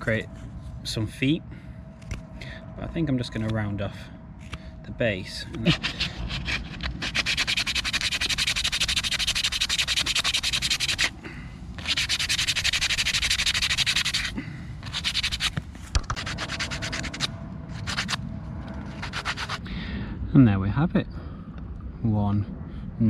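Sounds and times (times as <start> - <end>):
tool scraping wood carving: 5.6 - 11.2, 11.8 - 18.2, 18.9 - 19.6.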